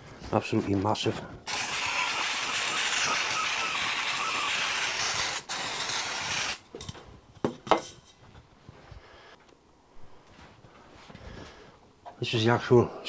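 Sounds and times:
aerosol spray can hissing: 1.5 - 6.6.

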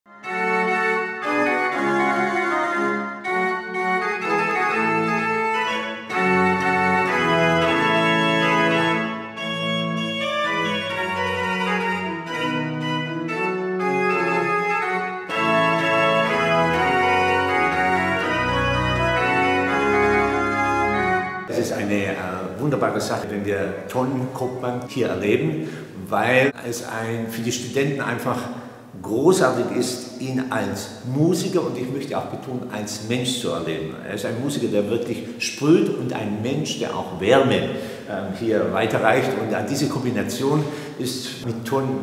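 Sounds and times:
pipe organ playing: 0.1 - 26.6.

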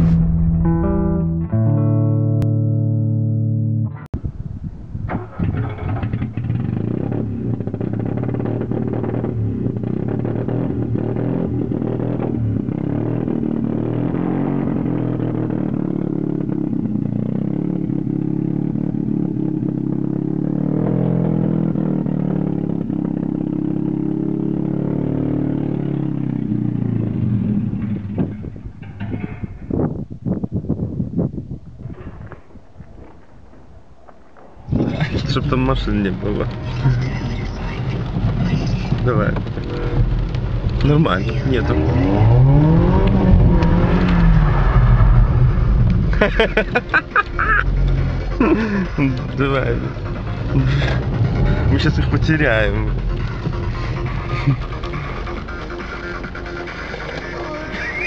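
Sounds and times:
tonal intro jingle: 0.0 - 2.6
background guitar music: 0.0 - 4.1, 40.7 - 44.8, 45.5 - 58.0.

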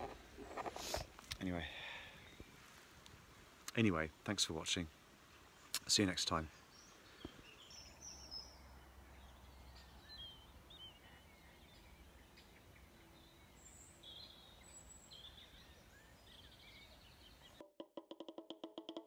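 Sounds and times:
small birds chirping and trilling: 5.5 - 17.6.

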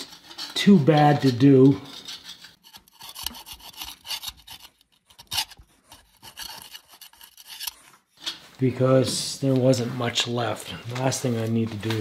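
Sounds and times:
metal scraper scraping gasket: 0.0 - 8.4.

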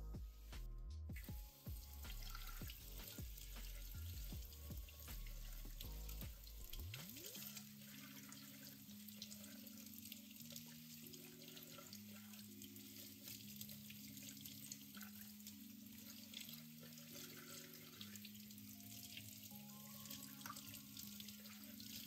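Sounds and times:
soft background music: 0.0 - 22.0
tap water running through a sieve: 1.1 - 22.0
water splashing into a steel sink: 2.0 - 19.5.

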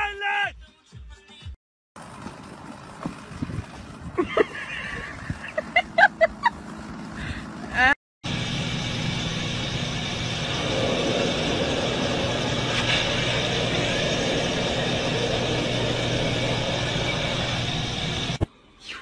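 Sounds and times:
plane engine and propeller drone: 8.3 - 18.4
wind rushing through window: 9.4 - 19.0.

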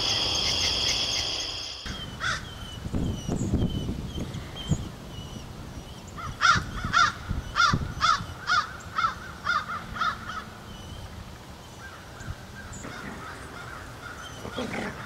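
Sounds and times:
crow cawing: 6.2 - 10.5, 12.6 - 14.2.

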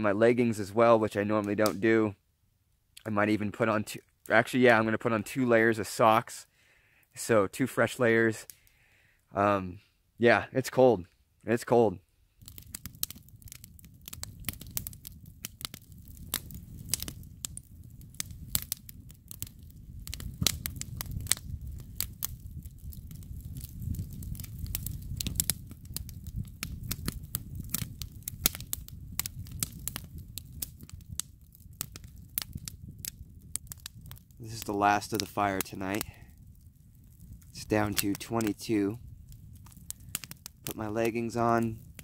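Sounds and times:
campfire crackling: 0.0 - 42.0
sharp pops and snaps: 1.4 - 1.9, 12.4 - 42.0.

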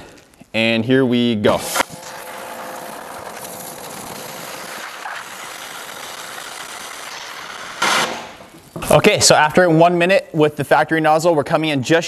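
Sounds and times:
water jet spraying into bucket: 1.6 - 8.6
electric pressure washer running: 1.7 - 8.4.

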